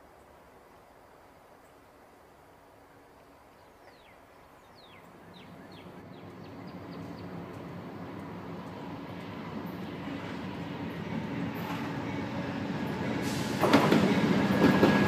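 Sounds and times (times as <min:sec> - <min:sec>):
train rumbling: 0:05.0 - 0:15.0.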